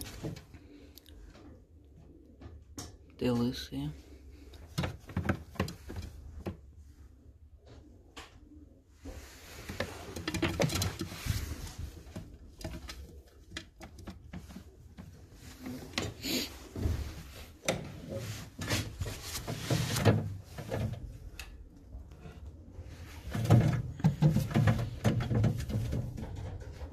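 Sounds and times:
pigeons tapping on clay bowl: 23.3 - 26.9.

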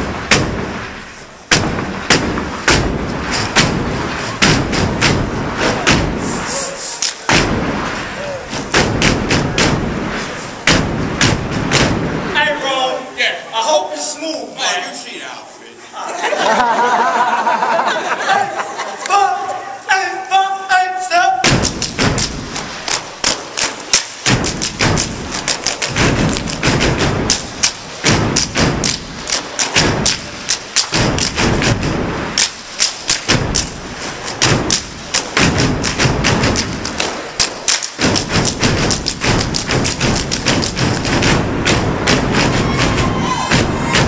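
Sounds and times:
rhythmic stomps on stage floor: 0.0 - 0.9, 1.5 - 6.3, 7.3 - 7.9, 8.5 - 12.3, 21.4 - 44.0
body slaps: 0.2 - 0.8, 1.5 - 6.3, 8.5 - 12.1, 21.4 - 44.0
hand claps: 34.3 - 41.3.

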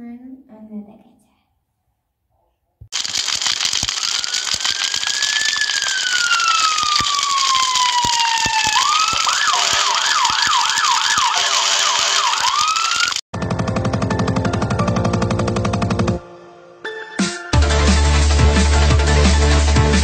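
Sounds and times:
loud crackling hiss: 3.0 - 13.2
emergency siren wailing: 3.9 - 13.2.

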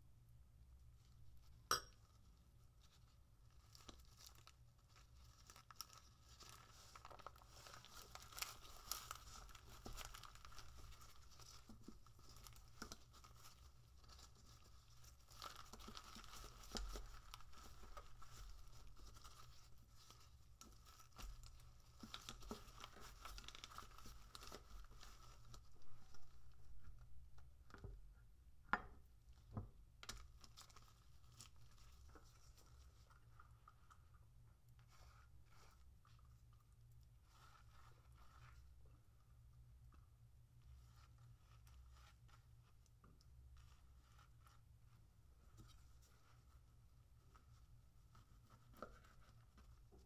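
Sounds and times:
bamboo mat rustling: 2.8 - 27.2
seaweed sheet crinkling: 2.8 - 27.4, 29.9 - 39.4.

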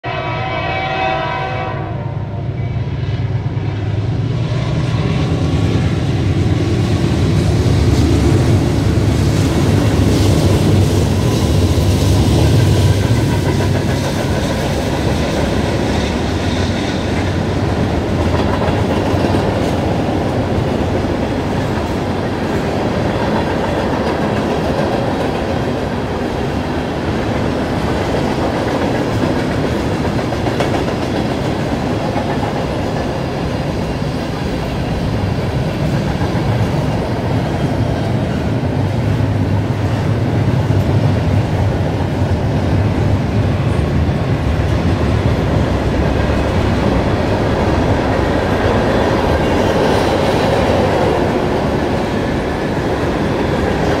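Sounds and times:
locomotive horn: 0.0 - 2.8
diesel locomotives rumbling: 0.0 - 54.0
rail cars clickety-clack: 2.4 - 54.0.

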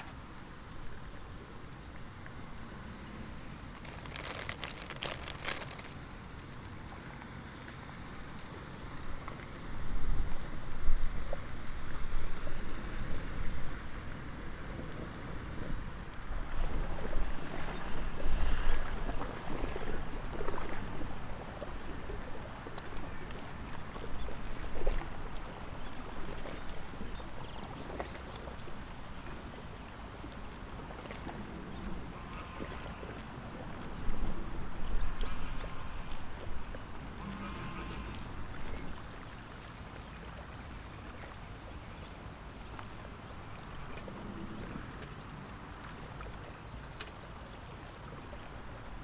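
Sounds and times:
wind rumbling on microphone: 3.4 - 39.3
lettuce leaves crackling: 3.6 - 7.4.

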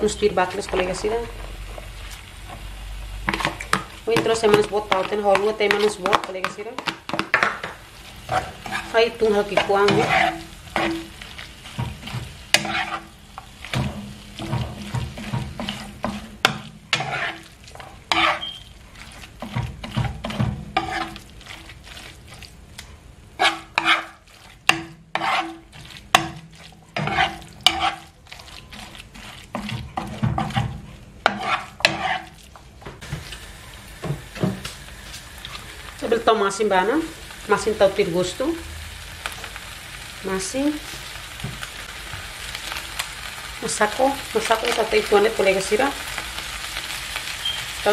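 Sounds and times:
food sizzling: 0.0 - 47.9
metal spoon scraping a frying pan: 8.1 - 22.4, 23.4 - 32.4.

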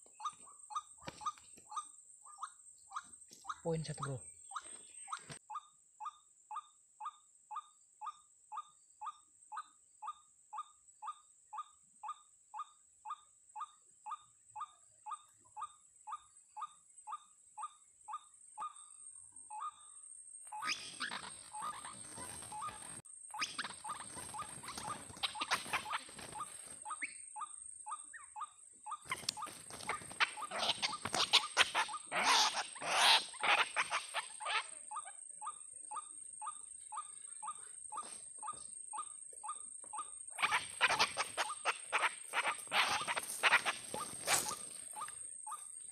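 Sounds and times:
wings flapping: 20.6 - 26.8, 29.0 - 34.3, 40.4 - 44.8
harsh croaking: 29.1 - 34.8, 40.4 - 45.1
waterhen calling: 29.1 - 34.8, 40.4 - 45.2.

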